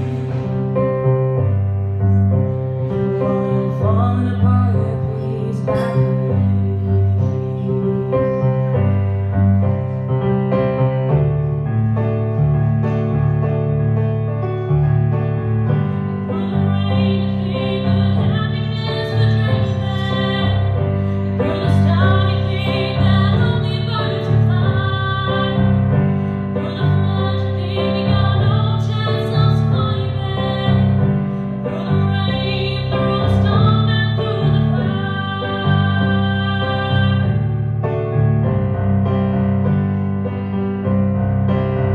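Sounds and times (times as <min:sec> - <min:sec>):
electric keyboard chords: 0:00.0 - 0:41.9
woman singing a slow ballad: 0:03.0 - 0:08.9, 0:16.2 - 0:37.5.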